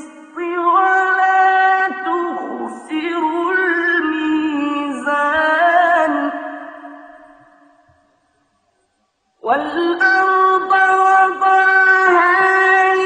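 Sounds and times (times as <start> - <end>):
solo voice chanting: 9.5 - 13.0.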